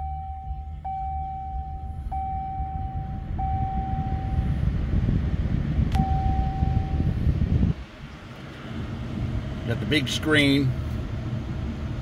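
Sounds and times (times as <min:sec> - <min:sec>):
dashboard chime beeps: 0:00.0 - 0:04.5, 0:06.0 - 0:07.1
engine low rumble: 0:00.0 - 0:12.0.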